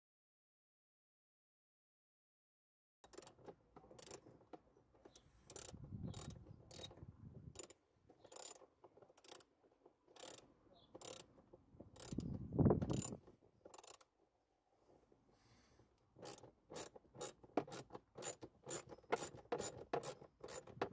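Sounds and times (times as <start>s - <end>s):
screwdriver clicking: 5.1s - 6.9s, 10.2s - 10.4s, 11.0s - 11.3s, 12.0s - 14.0s, 16.2s - 20.7s
screwdriver rubbing: 5.1s - 6.9s, 8.3s - 8.6s, 10.2s - 10.4s, 11.0s - 11.3s, 12.0s - 14.0s, 16.2s - 20.8s.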